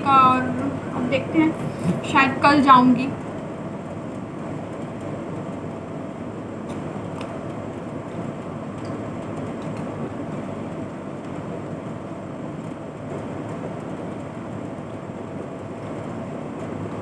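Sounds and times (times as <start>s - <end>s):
air conditioner running: 0.0s - 17.0s.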